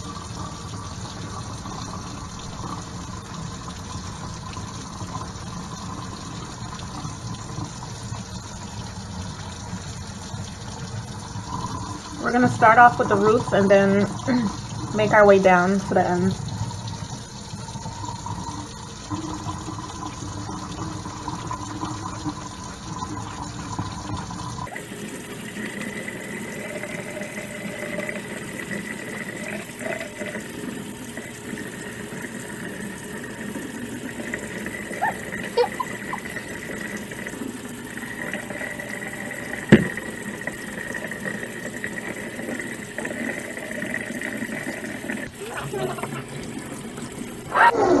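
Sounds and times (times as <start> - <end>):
hands scrubbing wet hair: 35.0 - 36.5
tap running into metal sink: 39.5 - 40.6.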